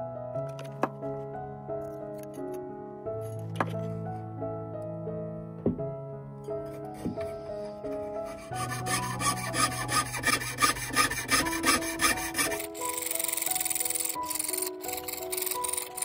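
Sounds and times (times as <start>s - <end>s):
soft background music: 0.0s - 16.0s
saw rasping through metal: 7.9s - 16.0s.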